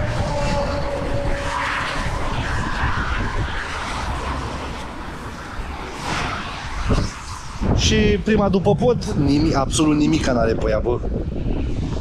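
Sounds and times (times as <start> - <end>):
road traffic rushing: 0.0 - 8.2.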